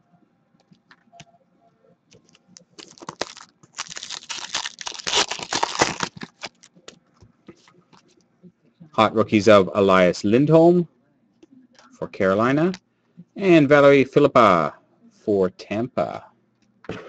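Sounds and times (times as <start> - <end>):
cards being handled: 2.2 - 6.8
foil wrapper crinkling: 2.2 - 6.8.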